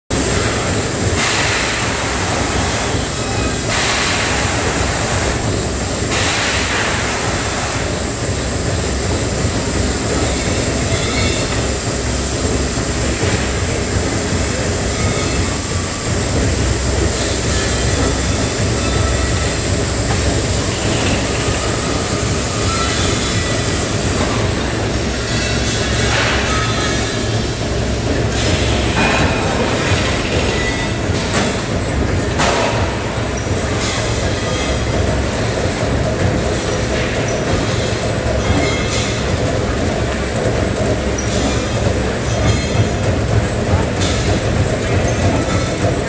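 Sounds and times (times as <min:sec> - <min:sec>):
machinery hiss: 0:00.2 - 0:30.7.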